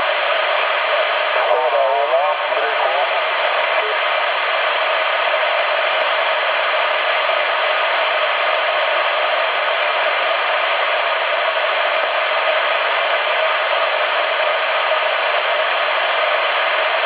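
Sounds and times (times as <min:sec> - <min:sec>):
radio static hiss: 0:00.0 - 0:17.0.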